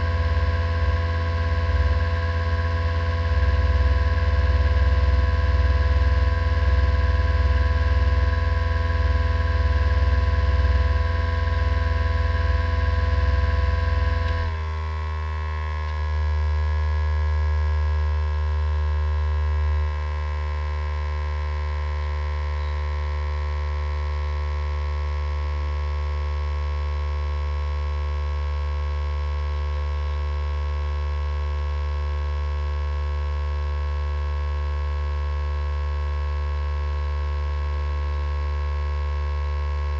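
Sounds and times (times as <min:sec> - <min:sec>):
steady electrical hum: 0:00.0 - 0:32.0.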